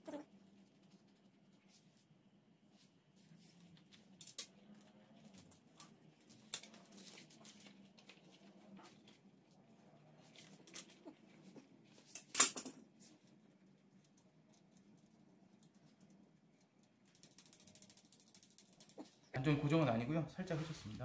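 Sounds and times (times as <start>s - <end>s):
small clicks of parts: 4.2s - 4.5s, 12.1s - 12.8s, 14.0s - 19.0s.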